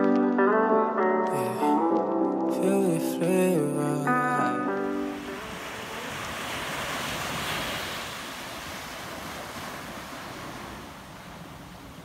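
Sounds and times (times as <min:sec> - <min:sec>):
small waves washing onto beach: 0:04.2 - 0:12.0
wind buffeting microphone: 0:05.1 - 0:12.0.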